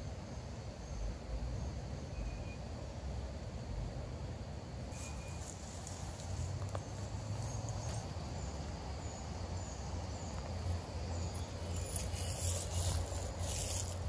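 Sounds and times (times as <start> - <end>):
faint high chirps: 2.0 - 2.7, 4.9 - 8.4.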